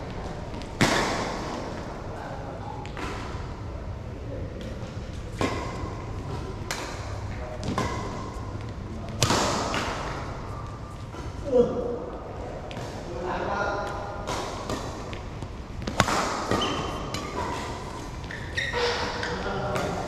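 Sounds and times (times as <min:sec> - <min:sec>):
rackets striking shuttlecock: 0:14.2 - 0:18.5.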